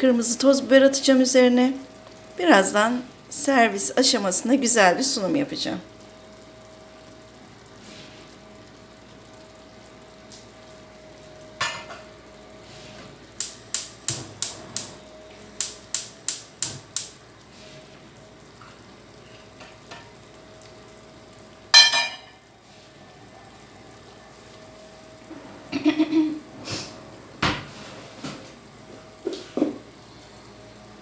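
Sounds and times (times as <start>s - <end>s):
gas hob igniter clicking: 13.4s - 17.2s
metal clink against pan: 21.8s - 22.4s.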